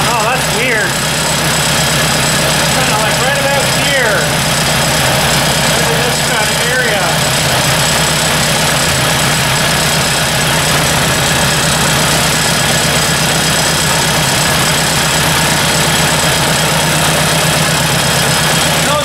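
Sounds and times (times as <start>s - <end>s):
man speaking: 0.0s - 1.0s, 2.7s - 4.4s, 5.7s - 7.3s, 18.8s - 19.0s
tractor engine idling: 0.0s - 19.0s.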